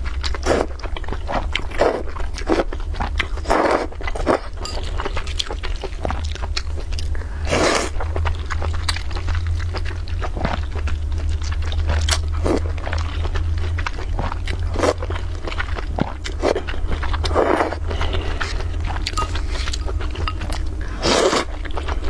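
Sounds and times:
low hum: 0.0 - 22.0
wet chewing: 0.0 - 22.0
noodle slurping: 17.3 - 22.0.

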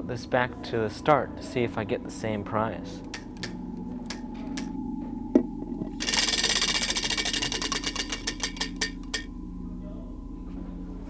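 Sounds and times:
prize wheel ticking: 6.0 - 9.3.

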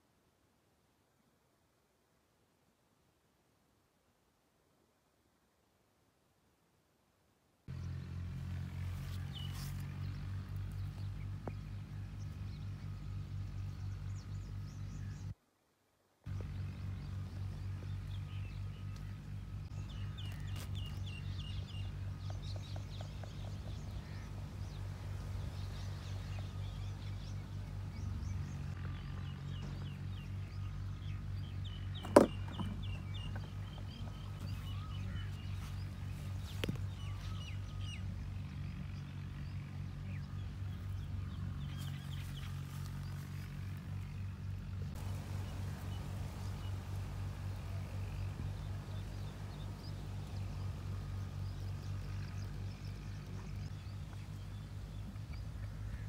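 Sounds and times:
small birds chirping: 7.7 - 15.4, 16.3 - 56.0
low steady hum: 16.3 - 56.0.

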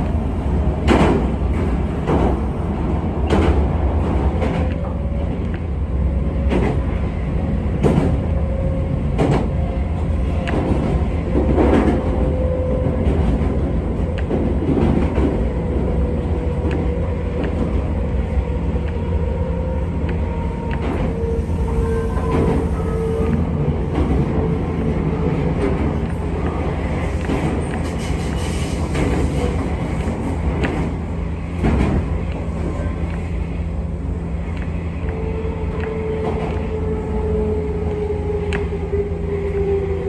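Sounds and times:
rail clacks: 0.0 - 36.9
train wheels rumbling on rail: 0.0 - 40.0.

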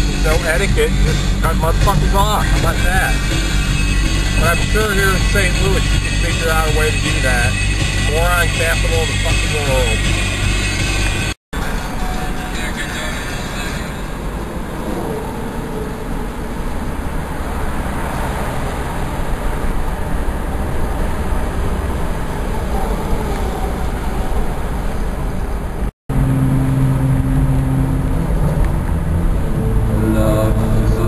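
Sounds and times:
steady low tones: 0.0 - 12.0, 25.1 - 31.0
car cabin road rumble: 0.0 - 31.0.

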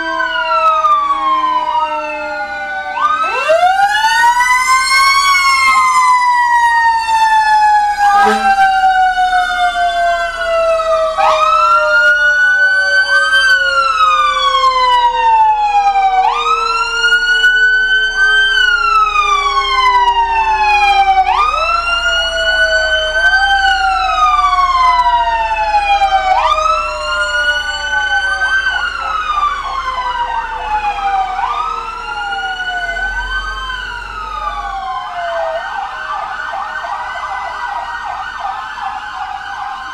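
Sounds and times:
fire truck sirens wailing: 0.0 - 39.9
siren yelp: 0.0 - 39.9.

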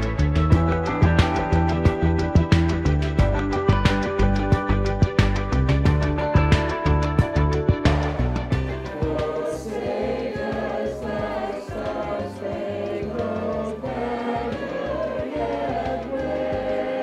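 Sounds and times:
bass line: 0.0 - 17.0
held instrumental chords: 0.0 - 17.0
choir singing: 8.7 - 17.0.

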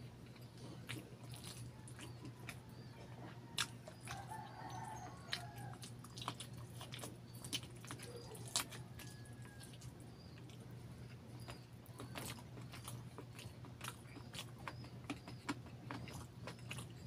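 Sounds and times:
steady low hum: 0.0 - 17.0
wet chewing and lip smacks: 0.1 - 17.0
faint rooster crow: 1.7 - 6.0, 8.0 - 10.3.

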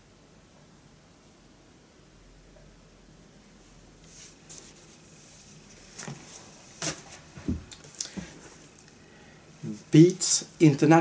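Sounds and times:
paper sleeves rustling: 4.0 - 8.8
soft thumps: 6.0 - 8.4.

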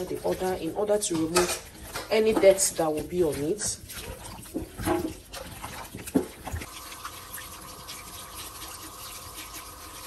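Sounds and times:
hands handling raw meat in sink: 0.0 - 8.0
kitchen tap running: 0.0 - 10.0.

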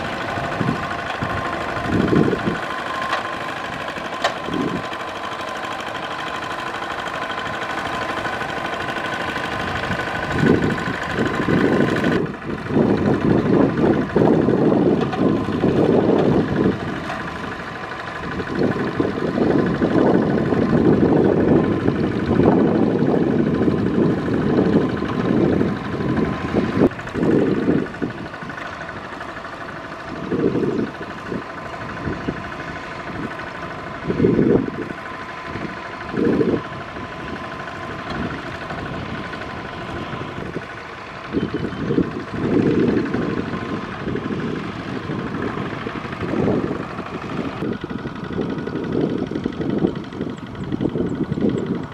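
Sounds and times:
diesel engine running: 0.0 - 51.9.

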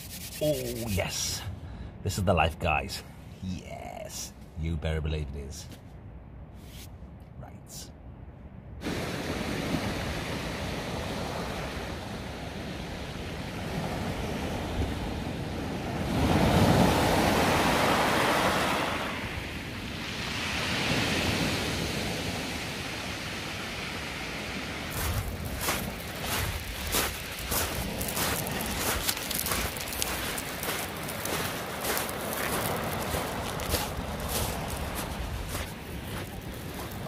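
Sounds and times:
waves breaking on shore: 8.8 - 37.0.

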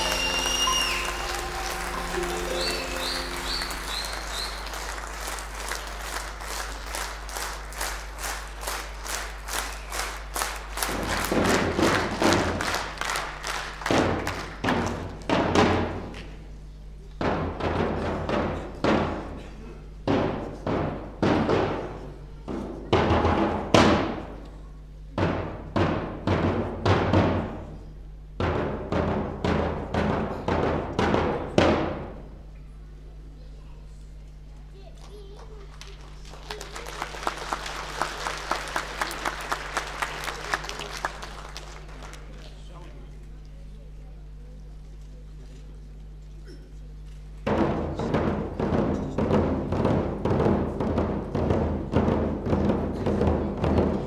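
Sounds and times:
drums ringing strokes: 0.0 - 5.7
audience applauding: 0.0 - 15.3, 34.8 - 43.2.

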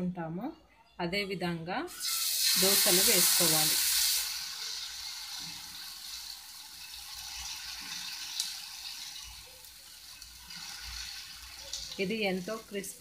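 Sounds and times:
batter sizzling on griddle: 1.9 - 13.0.

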